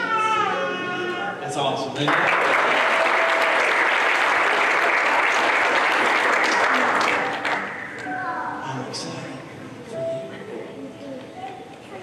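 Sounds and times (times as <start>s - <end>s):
crowd clapping: 2.1s - 8.1s.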